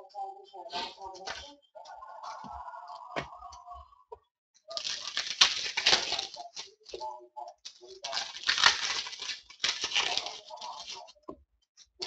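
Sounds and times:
cards rustling by hand: 0:04.7 - 0:11.2.

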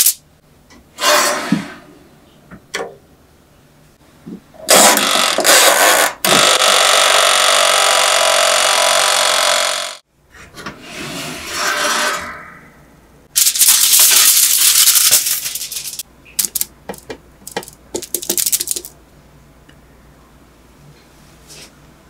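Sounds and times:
crinkling and rustling: 0:13.4 - 0:18.9.

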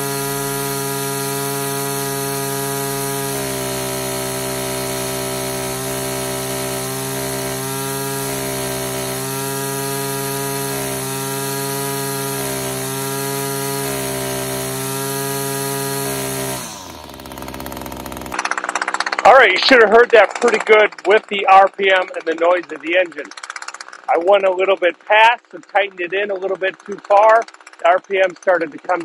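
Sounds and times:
string trimmer engine whining: 0:00.0 - 0:29.0.

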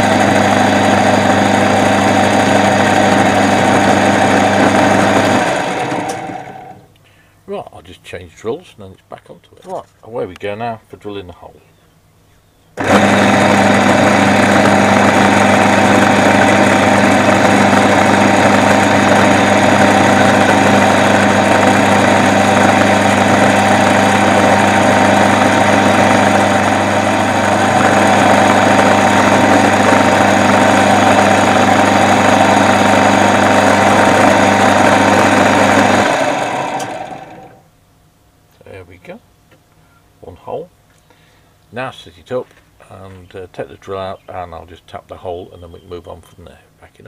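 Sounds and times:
drilling machine motor hum: 0:00.0 - 0:06.9, 0:12.8 - 0:37.6
motor running down: 0:00.0 - 0:06.9, 0:12.8 - 0:37.6.

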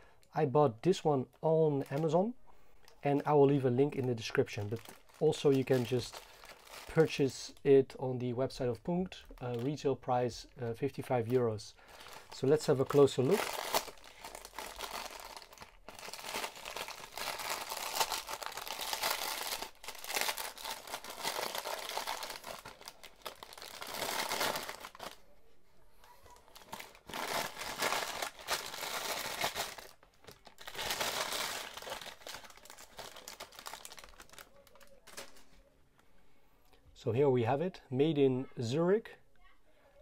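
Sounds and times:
packaging wrap crinkling: 0:03.9 - 0:07.6, 0:11.1 - 0:25.3, 0:26.0 - 0:35.6.

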